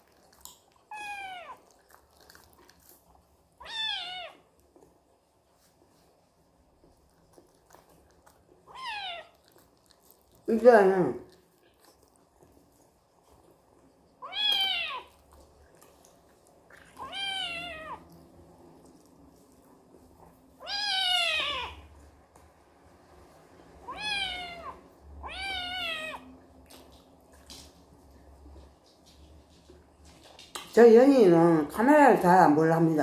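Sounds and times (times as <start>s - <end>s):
kitten meowing: 0.9s - 1.6s, 3.6s - 4.4s, 8.7s - 9.3s, 14.2s - 15.1s, 17.0s - 18.0s, 20.6s - 21.8s, 23.9s - 26.3s.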